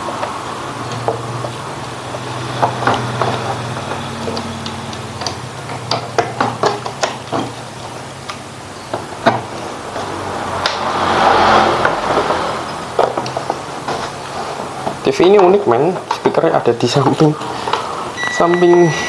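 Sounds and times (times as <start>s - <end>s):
wire connectors clicking and tapping: 0.0s - 10.8s.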